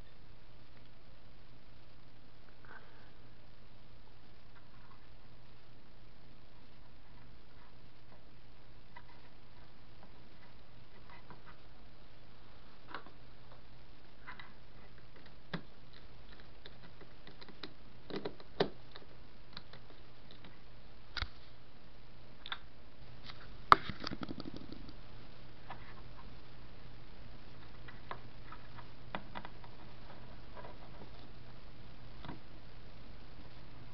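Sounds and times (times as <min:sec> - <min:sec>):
steady low hum: 0:00.0 - 0:33.9
faint clicks and ticks: 0:12.9 - 0:21.4.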